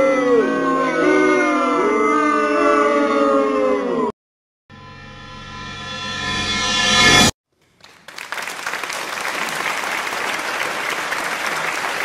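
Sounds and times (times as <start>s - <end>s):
applause: 7.5s - 12.0s.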